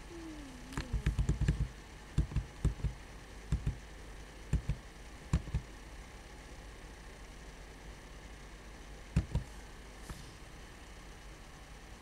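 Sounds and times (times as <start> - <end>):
computer keyboard keys pressed: 0.8 - 3.8, 4.5 - 5.6.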